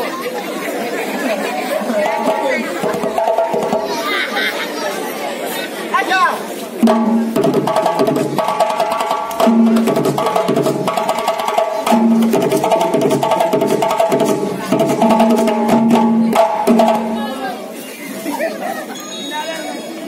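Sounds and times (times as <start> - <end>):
fast clicking percussion beat: 1.9 - 4.0, 6.8 - 17.4.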